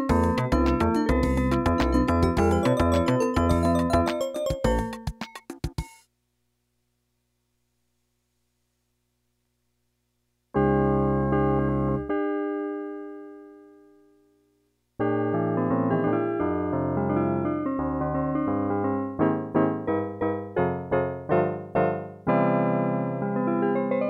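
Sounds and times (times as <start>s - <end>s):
electronic keyboard chords: 0.0s - 6.0s, 10.6s - 13.6s, 15.0s - 24.0s.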